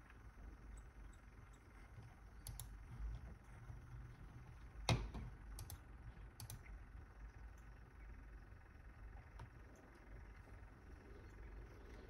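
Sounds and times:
light clicks and taps: 0.0s - 4.1s, 4.8s - 5.8s
faint low hum: 0.0s - 12.0s.

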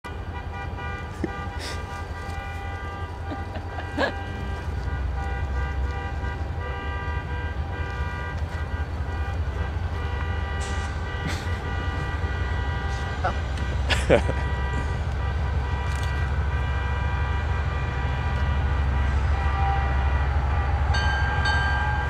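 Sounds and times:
diesel locomotives rumbling: 0.0s - 22.0s
train horn chord: 16.5s - 22.0s.

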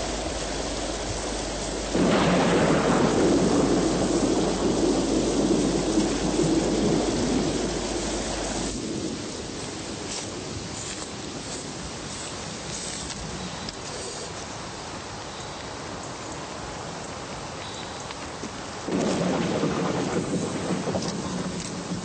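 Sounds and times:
thunder rumbling: 0.0s - 13.7s, 18.8s - 22.0s
rain hissing: 0.0s - 22.0s.

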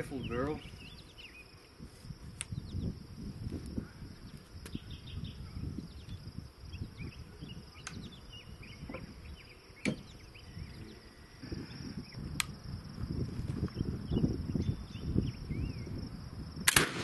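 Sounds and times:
wind on microphone: 0.0s - 17.0s
faint high chirping: 3.8s - 12.3s.

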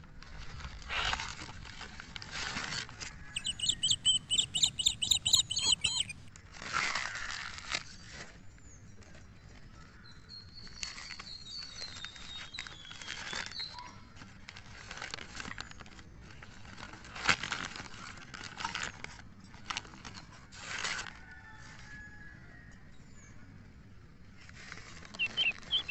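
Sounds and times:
sharp paper crackle: 10.8s - 21.0s
newspaper crinkling and rustling: 10.8s - 21.1s.

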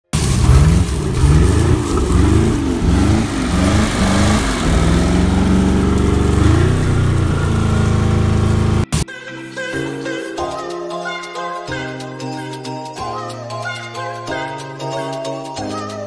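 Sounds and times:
boat engine revving: 0.1s - 8.9s.

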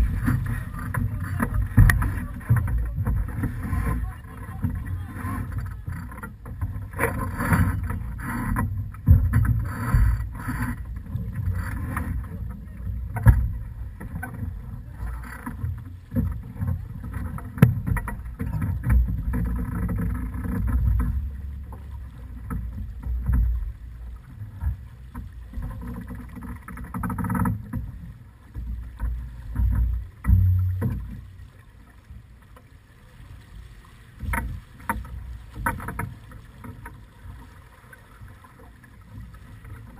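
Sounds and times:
wind buffeting microphone: 0.0s - 23.8s
water rushing past hull: 0.0s - 39.9s.

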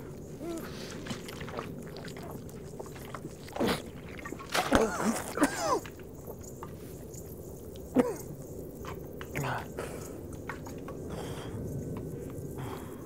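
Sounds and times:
man gulping from a bottle: 0.0s - 6.5s.

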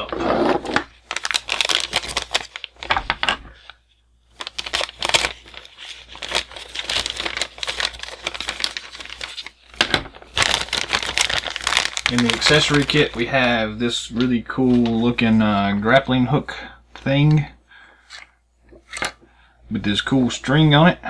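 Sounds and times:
plastic bag crinkling: 0.7s - 3.8s, 4.4s - 13.5s.

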